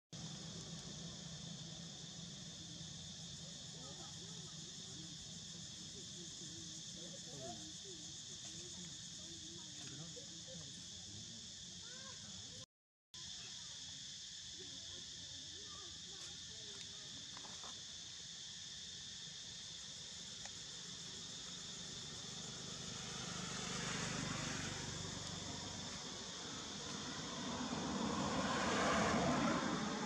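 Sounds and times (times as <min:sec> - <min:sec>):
high-pitched insect drone: 0:13.2 - 0:30.0.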